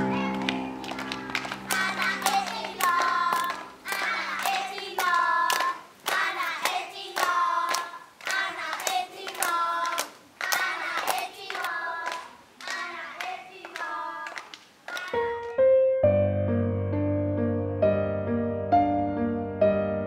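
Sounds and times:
hands clapping: 0:00.1 - 0:15.6
children singing a chant: 0:01.7 - 0:15.4.

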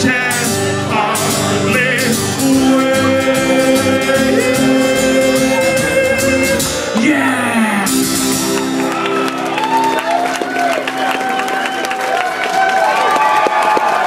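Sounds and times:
man singing: 0:00.0 - 0:08.4
strummed acoustic guitar: 0:00.0 - 0:09.4.

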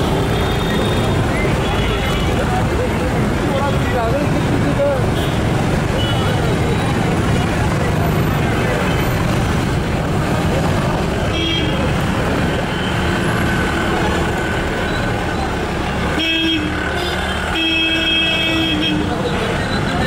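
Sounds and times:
road traffic: 0:00.0 - 0:20.0
vehicle horns honking: 0:05.1 - 0:06.6, 0:11.2 - 0:12.0, 0:16.1 - 0:20.0.

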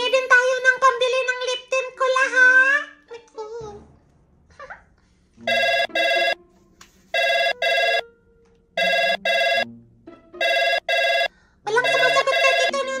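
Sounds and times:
telephone double rings: 0:05.4 - 0:06.4, 0:07.2 - 0:08.0, 0:08.8 - 0:09.7, 0:10.4 - 0:12.8.

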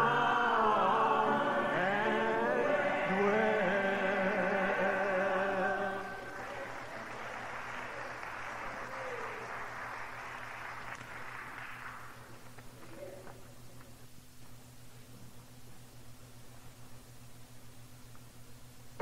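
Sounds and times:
gospel singing held note: 0:00.0 - 0:08.9.

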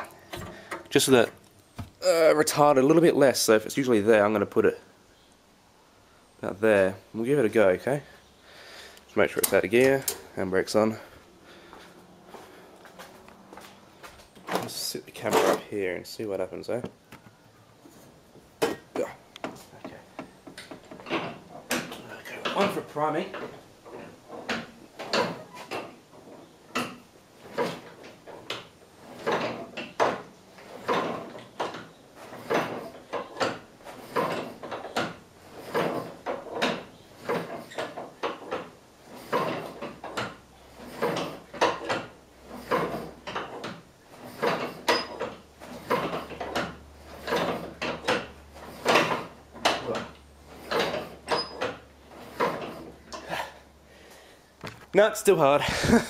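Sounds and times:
hand crank clunking engine over: 0:00.0 - 0:01.9, 0:18.6 - 0:53.6.

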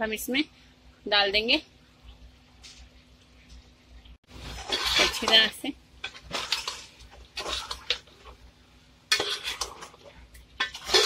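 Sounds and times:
metal spoon scraping a pot: 0:04.5 - 0:08.4, 0:09.1 - 0:11.0.

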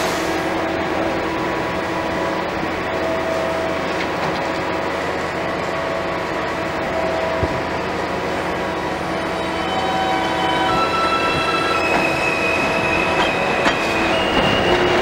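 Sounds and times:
subway train humming with whining tones: 0:00.0 - 0:15.0
train doors sliding shut: 0:10.5 - 0:15.0.

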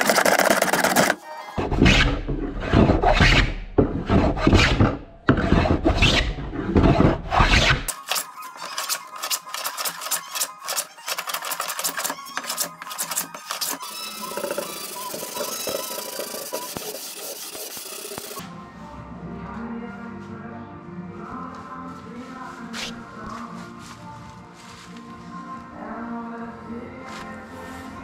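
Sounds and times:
hand plane shaving wood: 0:00.0 - 0:18.4
hand tool scraping with clicks: 0:07.9 - 0:18.4.

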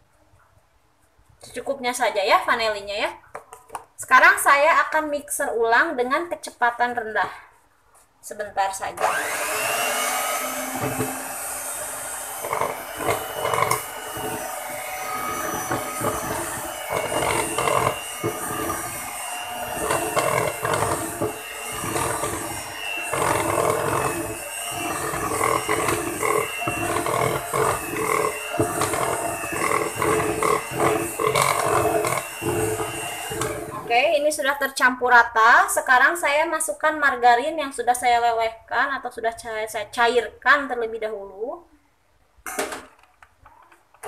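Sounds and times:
electric hand mixer running: 0:09.0 - 0:33.9.

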